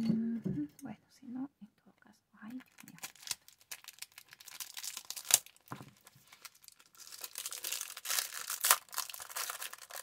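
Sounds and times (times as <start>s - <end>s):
plastic packaging tearing and crinkling: 2.6s - 10.0s.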